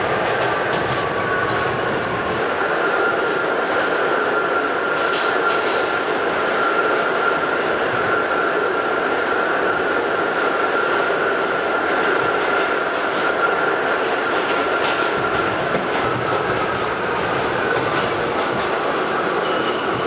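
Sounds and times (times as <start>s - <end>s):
subway car wheels rumbling on rails: 0.0s - 20.0s.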